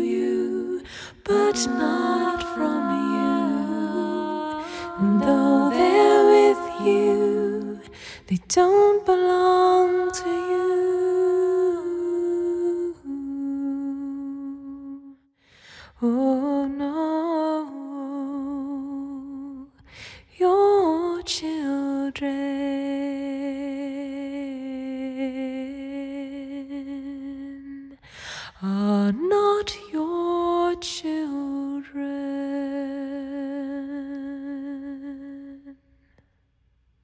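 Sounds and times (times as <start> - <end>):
person singing wordless melody: 0.0 - 15.1.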